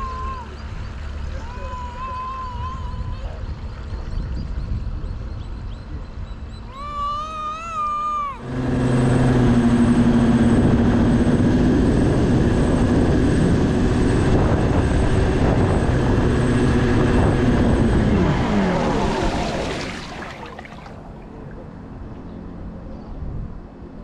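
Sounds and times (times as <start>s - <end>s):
boat motor running hard: 0.0s - 23.1s
high warbling tone: 14.8s - 21.8s
water rushing past hull: 15.9s - 22.3s.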